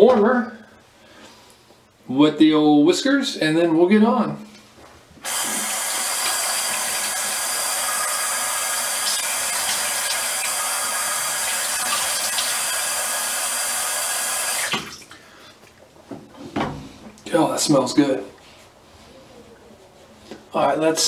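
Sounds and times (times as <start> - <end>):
sink tap running: 5.2 - 15.1.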